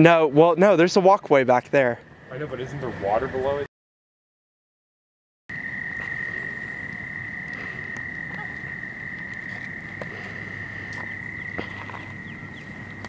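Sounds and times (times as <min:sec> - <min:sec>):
frogs trilling: 0:05.5 - 0:13.0.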